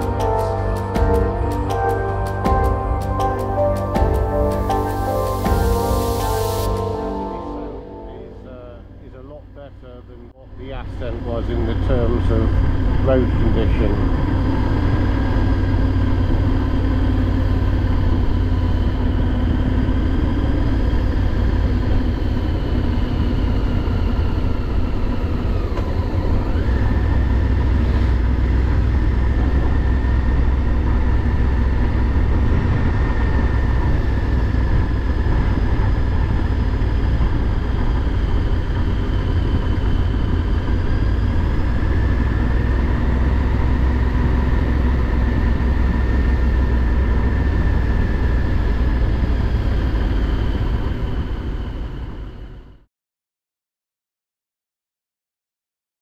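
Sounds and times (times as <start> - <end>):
motorcycle engine: 0.0 - 52.1
wind noise: 10.9 - 52.7.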